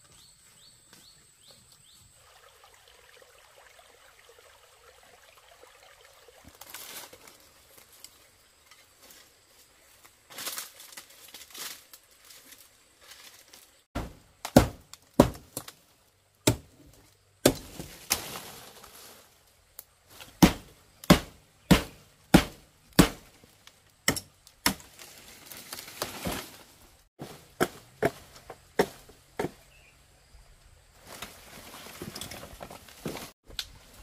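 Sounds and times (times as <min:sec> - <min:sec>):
fronds rustling and crackling: 0:06.4 - 0:29.5, 0:30.9 - 0:34.0
blade chopping palm stalks: 0:14.0 - 0:15.8, 0:16.4 - 0:16.8, 0:17.4 - 0:18.9, 0:20.2 - 0:23.4, 0:24.1 - 0:26.6, 0:27.2 - 0:29.7.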